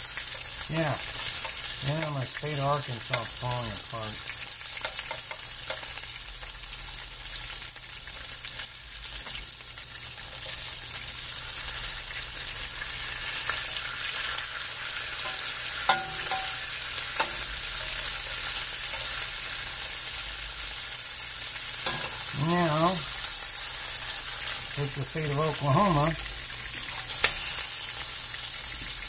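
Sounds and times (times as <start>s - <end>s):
meat sizzling in a frying pan: 0.0s - 29.0s
knife and spatula clicking on pan: 15.2s - 16.6s.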